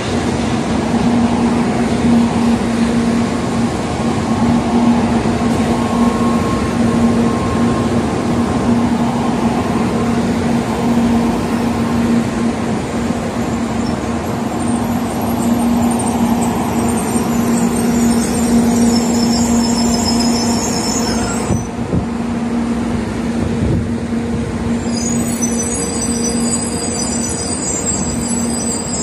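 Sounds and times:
train high whining: 0.0s - 29.0s
train low hum: 0.0s - 29.0s.

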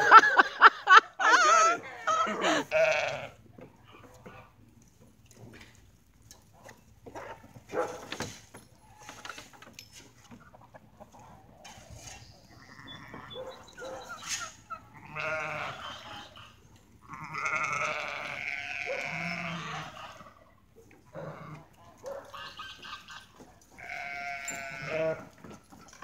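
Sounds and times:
farm animals bleating: 1.4s - 4.6s, 12.1s - 26.0s.

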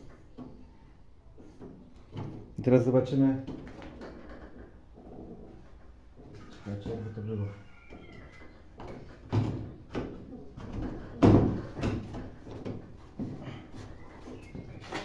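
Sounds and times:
metal knocks and clunks: 7.8s - 13.6s.

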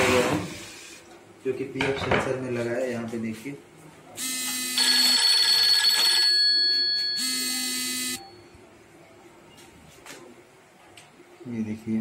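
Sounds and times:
electronic telephone ringing: 4.2s - 8.5s.

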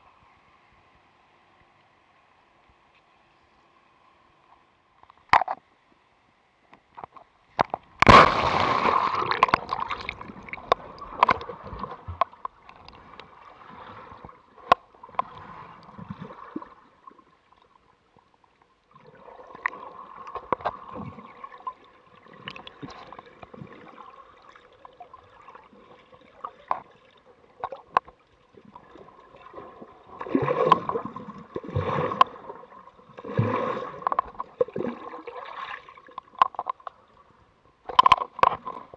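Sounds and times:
muffled underwater sloshing: 7.8s - 38.9s
camera splashing into water: 8.0s - 12.3s.

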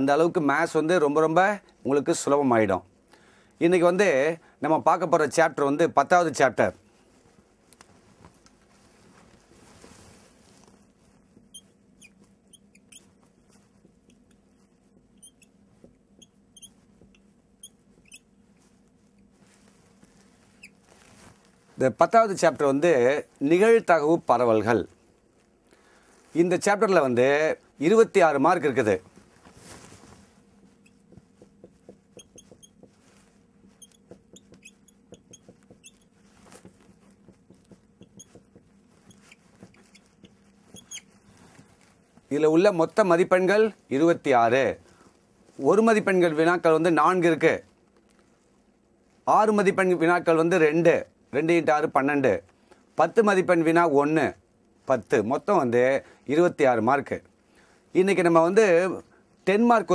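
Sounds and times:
whiteboard marker squeaking: 11.4s - 18.4s, 20.5s - 20.8s, 30.7s - 41.2s.

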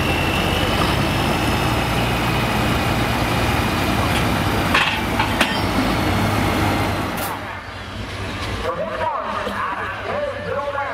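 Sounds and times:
tractor diesel engine idling: 0.0s - 9.2s.

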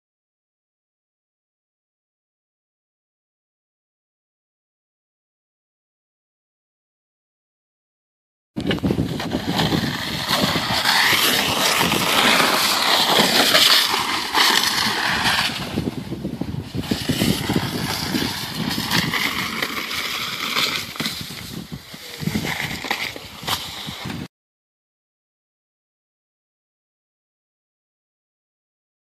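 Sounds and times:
sled scraping down icy track: 8.6s - 24.3s.

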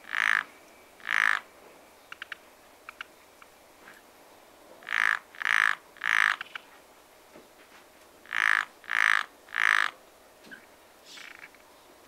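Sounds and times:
frog croaking: 0.0s - 1.5s, 2.1s - 3.5s, 4.8s - 6.6s, 8.2s - 10.0s.

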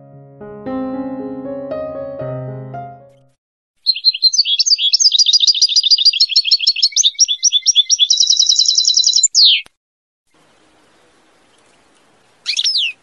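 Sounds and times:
finch singing: 3.8s - 9.7s, 12.4s - 13.0s.

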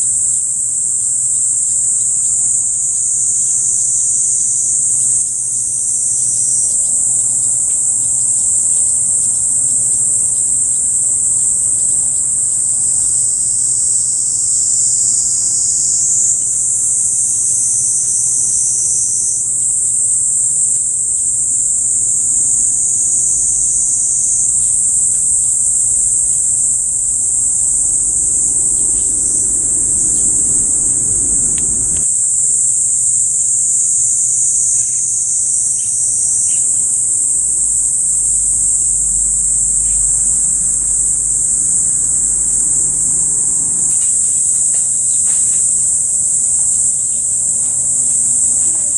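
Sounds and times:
insect chorus shrilling: 0.0s - 48.9s
faint low rumble: 24.4s - 32.2s, 37.1s - 48.9s.

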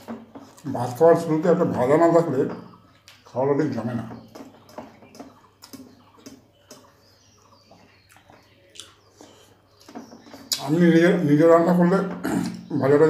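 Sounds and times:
fingers eating rice on steel plate: 4.2s - 10.8s.

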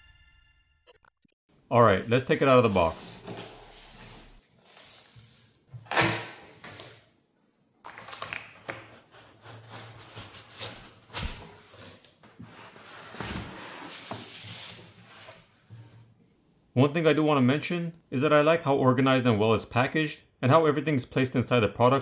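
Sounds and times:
cardboard and foam rustling: 9.4s - 16.0s.

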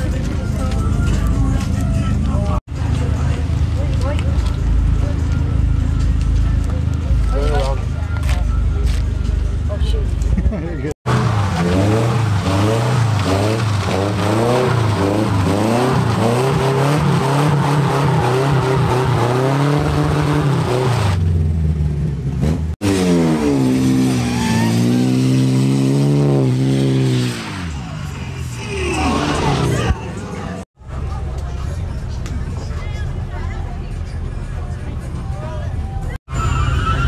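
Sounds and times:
car engine revving hard: 11.1s - 21.3s, 22.4s - 28.0s
tyre squeal: 27.8s - 29.9s, 36.3s - 37.0s.

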